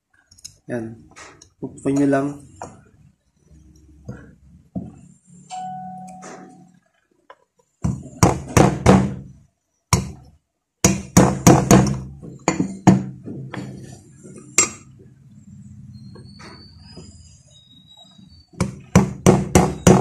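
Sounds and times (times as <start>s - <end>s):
hammer tapping metal: 10.8s - 13.7s.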